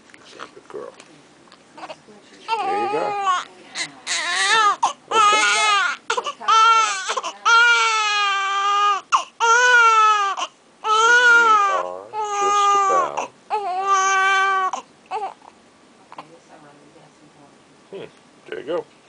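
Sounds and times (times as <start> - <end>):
baby crying: 1.8 - 15.5.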